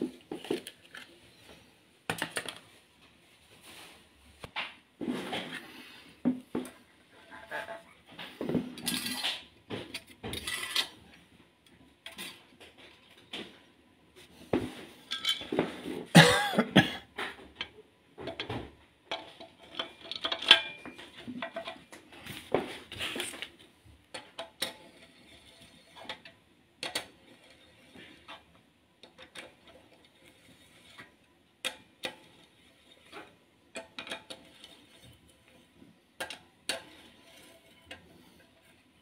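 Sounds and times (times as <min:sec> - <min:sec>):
metal engine parts clattering: 0:15.1 - 0:15.6, 0:19.1 - 0:21.8.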